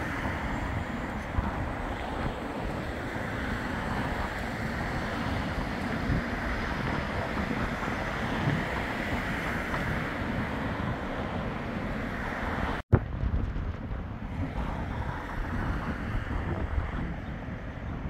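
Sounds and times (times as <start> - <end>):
tram pulling away: 0.0 - 12.8
wind buffeting microphone: 0.0 - 18.0.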